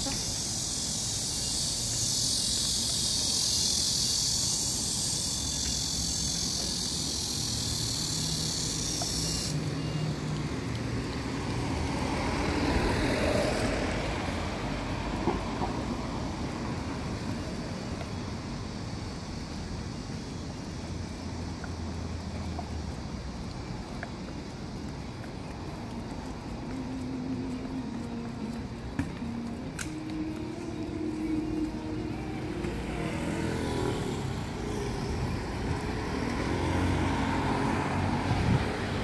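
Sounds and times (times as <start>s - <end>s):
vehicle passing: 0.0s - 19.9s, 20.6s - 39.0s
insect chorus: 0.0s - 39.0s
street traffic rumbling: 0.0s - 39.0s.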